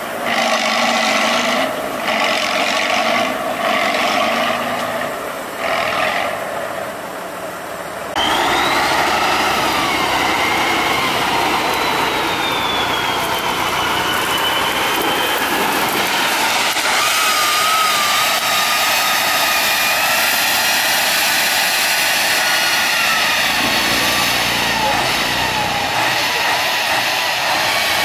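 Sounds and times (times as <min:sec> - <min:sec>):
truck engine under load: 0:00.0 - 0:28.0
high whine: 0:07.9 - 0:28.0.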